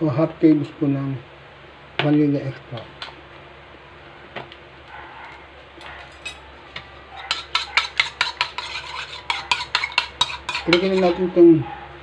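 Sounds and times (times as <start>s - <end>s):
metal spoon clinking in ceramic bowl: 7.2s - 11.2s.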